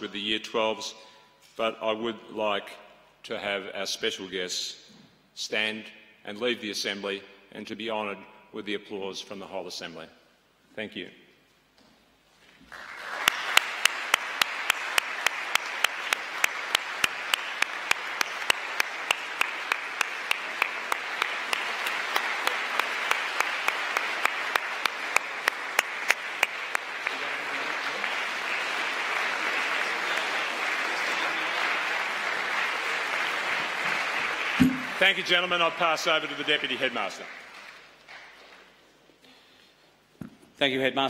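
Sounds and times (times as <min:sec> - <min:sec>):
audience applauding: 0:12.6 - 0:38.7
close sharp clapping: 0:12.6 - 0:38.8.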